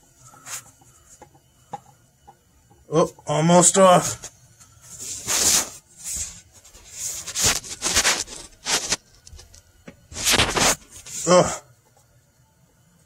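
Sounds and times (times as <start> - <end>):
oil filter rubbing and scuffing: 4.0 - 11.3.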